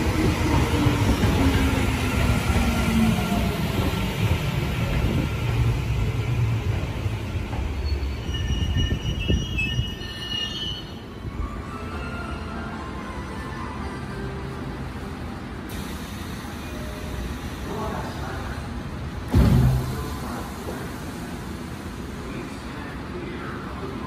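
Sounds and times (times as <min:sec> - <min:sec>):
train wheels rumbling: 0:00.0 - 0:10.3
high brake squeal: 0:07.7 - 0:12.6.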